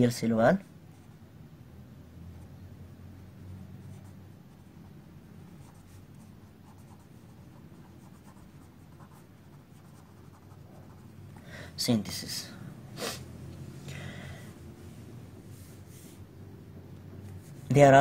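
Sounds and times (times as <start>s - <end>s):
low room hum: 0.0s - 18.0s
pen scratching on paper: 3.8s - 11.2s.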